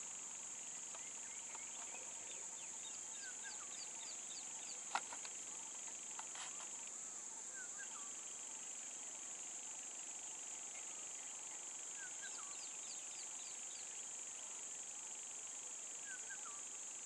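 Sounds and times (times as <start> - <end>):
high-pitched insect drone: 0.0 - 17.0
birds chirping: 0.6 - 8.5.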